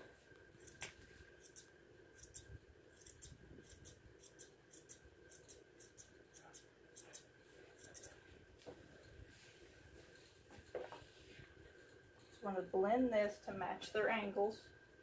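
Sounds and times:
grooming shears snipping hair: 0.6s - 8.2s.

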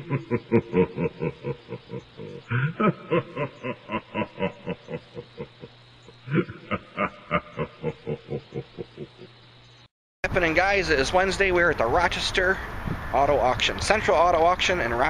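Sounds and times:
person laughing in rhythmic pulses: 0.0s - 9.4s.

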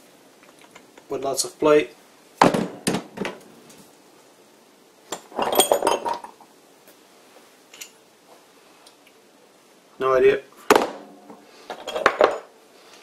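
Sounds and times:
metal tools clinking: 5.1s - 6.4s, 7.7s - 8.0s, 11.7s - 12.5s.

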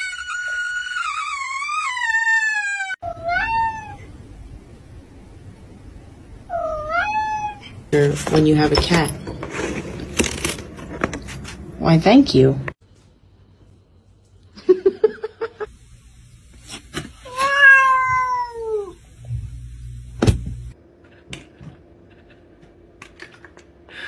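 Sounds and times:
cat meowing: 0.0s - 4.0s, 6.5s - 7.7s, 17.2s - 19.0s.

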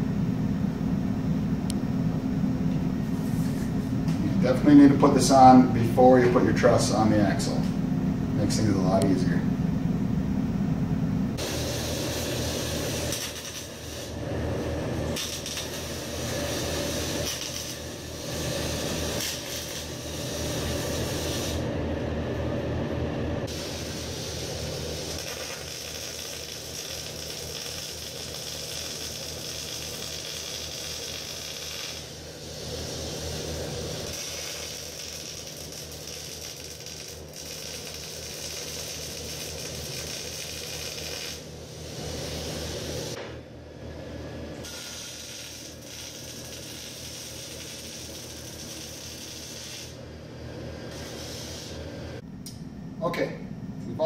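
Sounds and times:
welder arc crackling: 11.4s - 21.7s, 23.5s - 43.2s, 44.6s - 50.0s, 50.9s - 52.6s.

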